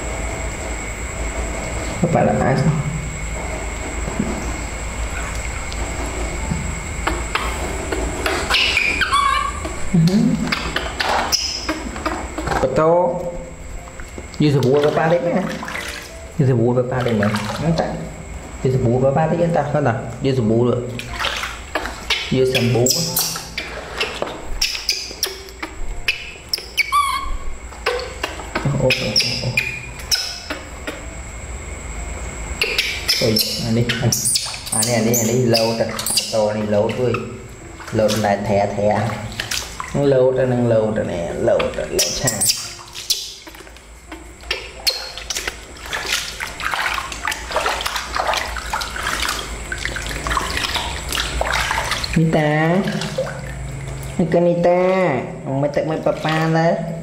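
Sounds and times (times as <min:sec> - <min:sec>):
water splashing in plastic basin: 0:04.1 - 0:16.2, 0:16.8 - 0:18.1, 0:20.8 - 0:31.0, 0:32.6 - 0:55.0, 0:55.6 - 0:57.0
infant monkey squeaking: 0:08.4 - 0:11.8, 0:22.1 - 0:31.0, 0:32.6 - 0:37.3, 0:41.9 - 0:43.6, 0:44.4 - 0:45.3.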